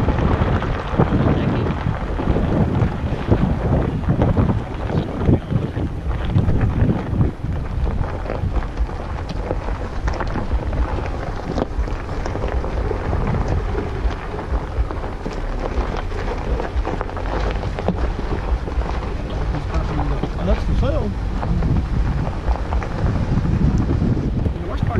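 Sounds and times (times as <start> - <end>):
stones crackling under tyres: 0.0 - 24.9
tyres rumbling on gravel: 0.0 - 24.9
wind buffeting the microphone: 0.0 - 24.9.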